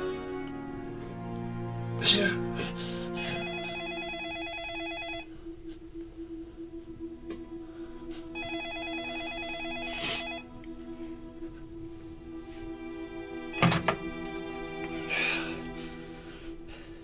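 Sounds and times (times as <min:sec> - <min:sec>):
telephone ringing with warbling trill: 0:03.2 - 0:05.3, 0:08.4 - 0:10.5.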